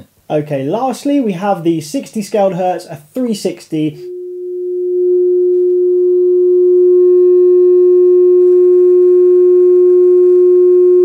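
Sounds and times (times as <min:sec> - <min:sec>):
raspy distortion: 0:01.6 - 0:08.6
sine test tone through woofer: 0:04.0 - 0:11.0.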